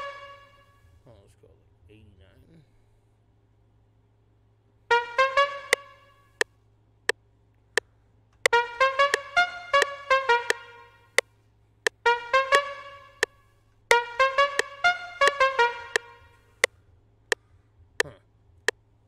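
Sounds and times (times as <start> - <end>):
synthesizer staccato notes: 8.5 - 11.0, 13.9 - 16.3.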